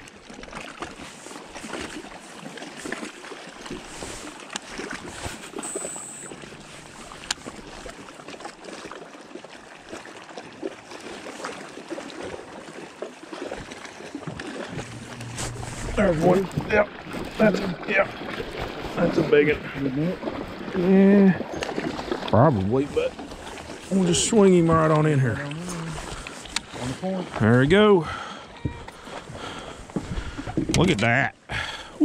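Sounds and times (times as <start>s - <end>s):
waves lapping against boat hull: 0.0s - 32.0s
high whine: 5.3s - 8.0s, 14.7s - 17.0s.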